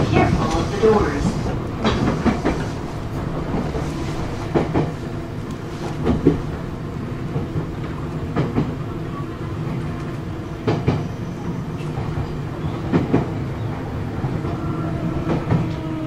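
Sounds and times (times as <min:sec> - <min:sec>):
train motor hum: 0:00.0 - 0:16.0.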